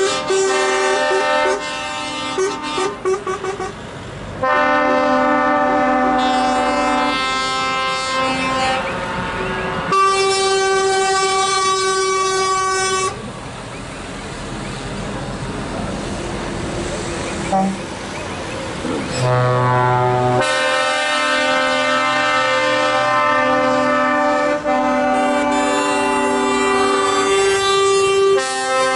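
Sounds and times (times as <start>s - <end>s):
truck air horns: 0.0s - 3.8s, 4.4s - 13.3s, 17.5s - 17.8s, 19.1s - 28.9s
truck engines passing: 0.0s - 28.9s.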